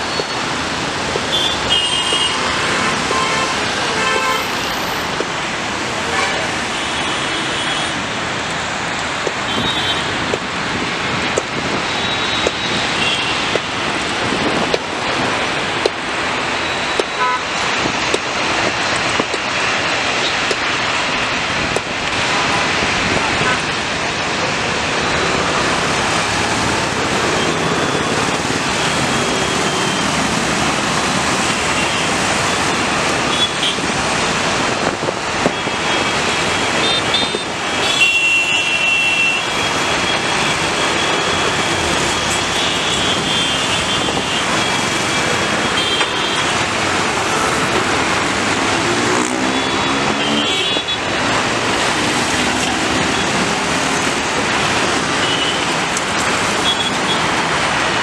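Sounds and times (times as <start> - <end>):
road traffic passing: 0.0 - 58.0
vehicle engine speeding up: 47.9 - 50.6.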